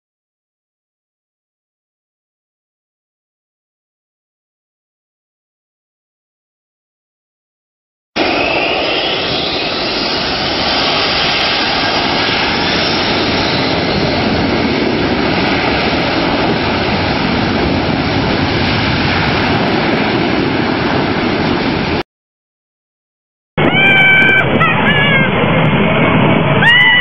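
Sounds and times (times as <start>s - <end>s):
high whine rising in pitch: 8.2s - 14.1s
aircraft engines roaring: 8.2s - 22.0s, 23.6s - 27.0s.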